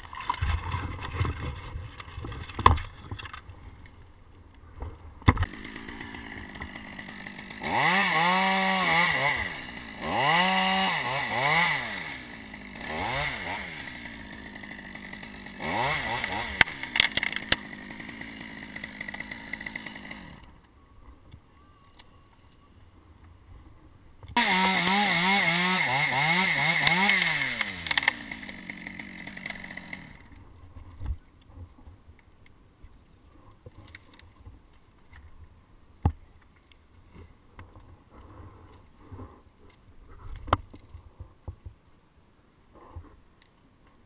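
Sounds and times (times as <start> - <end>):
chainsaw revving and cutting: 5.4 - 20.5, 24.4 - 30.4.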